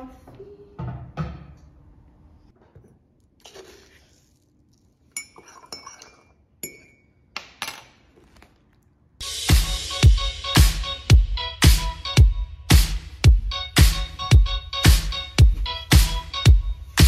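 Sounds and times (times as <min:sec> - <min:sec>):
spoon clinking in ceramic mug: 0:05.1 - 0:07.8
loud music with steady beat: 0:09.2 - 0:17.0.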